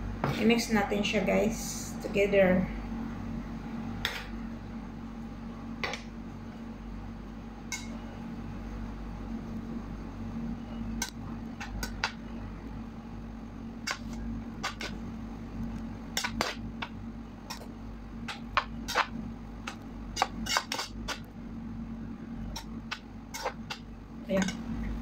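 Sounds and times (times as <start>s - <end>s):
steady low hum: 0.0s - 25.0s
metal spoon scraping a pan: 20.2s - 21.2s, 23.3s - 23.8s.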